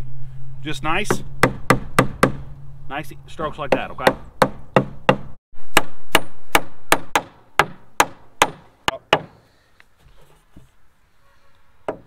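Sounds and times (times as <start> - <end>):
hammer striking wood: 1.1 - 2.5, 3.7 - 9.4.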